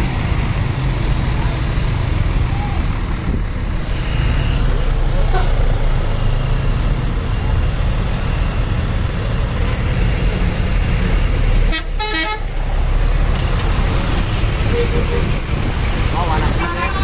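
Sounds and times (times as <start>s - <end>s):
bus diesel engines running: 0.0s - 17.0s
multi-tone bus horn: 4.0s - 5.7s, 11.6s - 12.5s, 14.7s - 15.4s.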